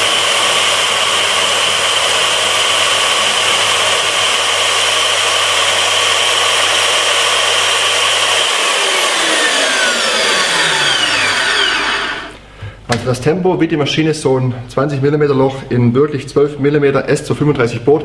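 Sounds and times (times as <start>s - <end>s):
core drill cutting steel: 0.0s - 12.4s
motor winding down: 0.0s - 12.4s.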